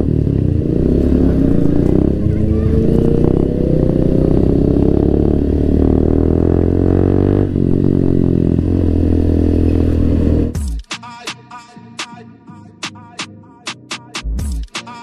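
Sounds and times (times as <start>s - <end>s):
motorcycle engine accelerating: 0.0s - 10.6s.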